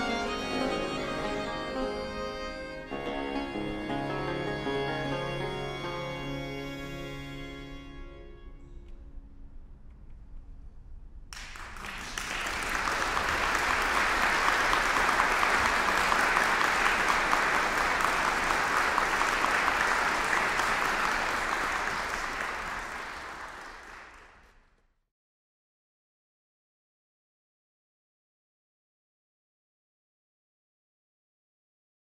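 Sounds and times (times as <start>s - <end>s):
audience applauding: 0.0s - 6.2s, 11.3s - 24.7s.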